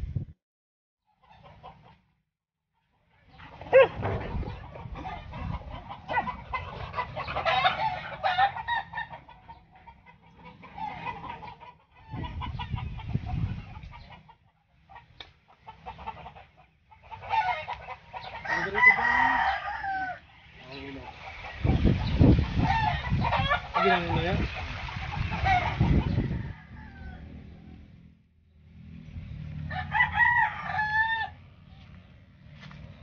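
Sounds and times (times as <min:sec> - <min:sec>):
chickens clucking: 0:01.1 - 0:02.2, 0:02.8 - 0:28.0.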